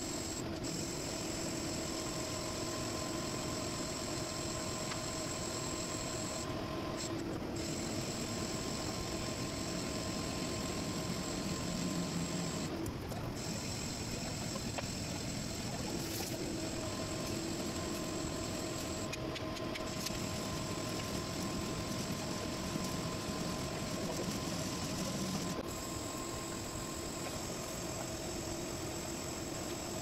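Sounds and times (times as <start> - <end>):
metal lathe humming: 0.1 - 12.7.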